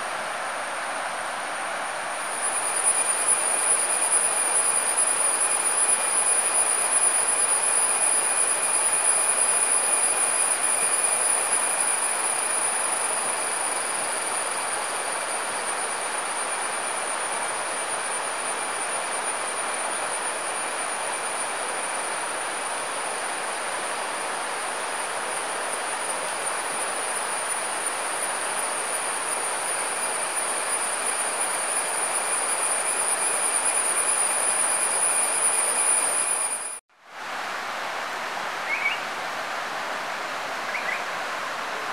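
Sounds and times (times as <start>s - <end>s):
high-pitched insect drone: 2.3s - 36.8s.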